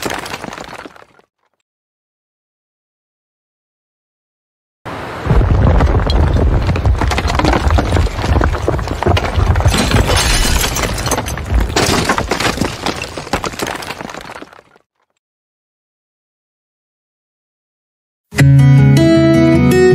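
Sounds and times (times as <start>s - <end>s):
crashing and breaking debris: 0.0s - 1.2s, 5.3s - 14.9s
deep rumble of building collapse: 5.2s - 14.5s.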